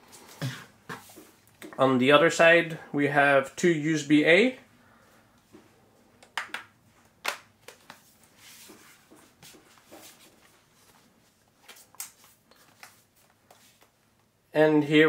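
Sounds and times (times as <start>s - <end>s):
soft rustling: 7.8s - 14.3s.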